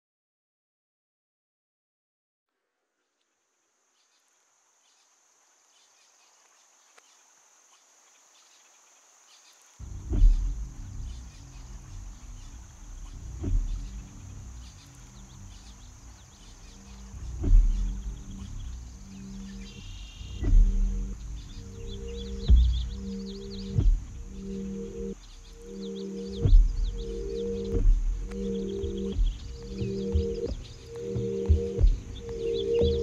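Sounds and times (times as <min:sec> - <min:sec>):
high insect-like chirring: 0:04.0 - 0:33.0
heavy low boom: 0:09.8 - 0:16.1, 0:16.9 - 0:33.0
deep bass score: 0:09.8 - 0:33.0.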